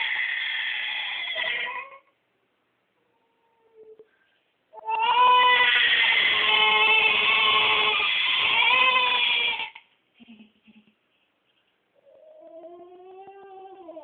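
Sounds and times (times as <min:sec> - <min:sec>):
wailing cry through baby monitor: 0:00.0 - 0:02.1, 0:04.8 - 0:09.8, 0:12.1 - 0:14.0.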